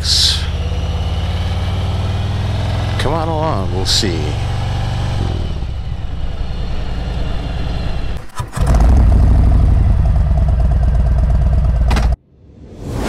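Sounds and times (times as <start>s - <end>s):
motorcycle engine rumbling: 0.0s - 12.2s.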